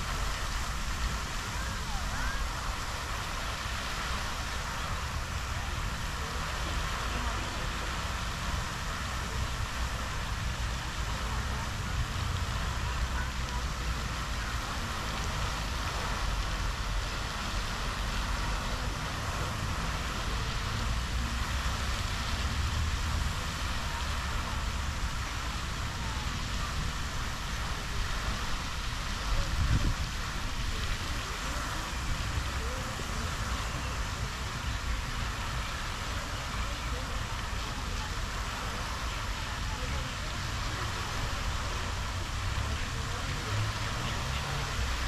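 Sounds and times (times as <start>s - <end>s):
fountain spray hissing onto water: 0.0s - 45.0s
wind rumble on microphone: 0.0s - 45.0s.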